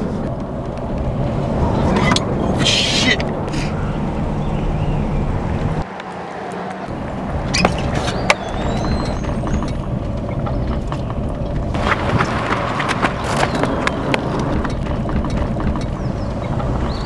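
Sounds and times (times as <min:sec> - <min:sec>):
pickup truck running: 0:00.0 - 0:17.0
road noise: 0:00.0 - 0:17.0
sharp knocks and clicks: 0:07.4 - 0:17.0.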